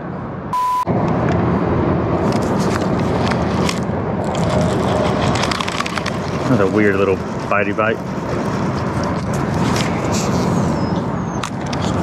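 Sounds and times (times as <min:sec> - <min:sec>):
steady rushing noise: 0:00.0 - 0:12.0
steady test tone: 0:00.5 - 0:01.0.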